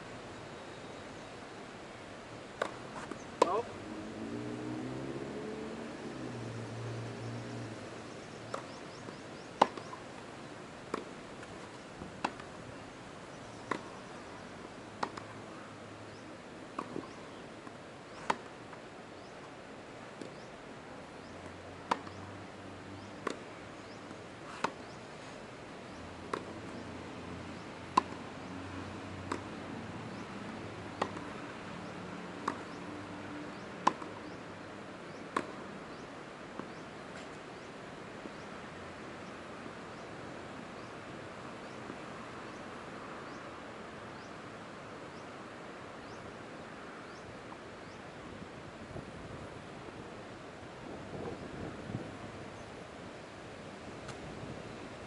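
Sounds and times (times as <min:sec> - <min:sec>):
tennis ball bouncing: 0:02.6 - 0:03.7, 0:08.4 - 0:10.1, 0:10.9 - 0:12.6, 0:13.5 - 0:14.0, 0:15.0 - 0:15.3, 0:16.7 - 0:18.6, 0:21.8 - 0:22.2, 0:23.0 - 0:24.9, 0:26.2 - 0:26.9, 0:27.5 - 0:28.4, 0:29.2 - 0:30.4, 0:31.0 - 0:31.8, 0:32.4 - 0:32.9, 0:33.5 - 0:34.4, 0:35.1 - 0:36.0
tennis ball struck by rackets: 0:02.6 - 0:03.7, 0:08.5 - 0:10.0, 0:10.9 - 0:11.6, 0:12.2 - 0:12.6, 0:13.6 - 0:14.0, 0:15.0 - 0:15.3, 0:16.8 - 0:17.2, 0:18.2 - 0:18.5, 0:21.8 - 0:22.2, 0:23.2 - 0:23.4, 0:24.1 - 0:24.9, 0:26.3 - 0:26.8, 0:27.9 - 0:28.2, 0:29.2 - 0:29.5, 0:31.0 - 0:31.4, 0:32.4 - 0:32.8, 0:33.5 - 0:34.4, 0:35.3 - 0:35.6.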